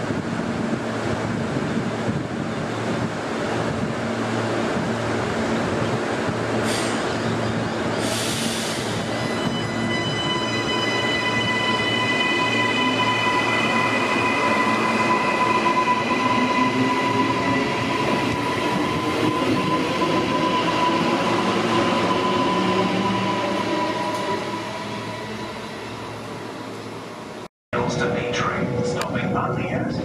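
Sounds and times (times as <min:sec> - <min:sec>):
train wheels on rail: 0:00.0 - 0:10.3.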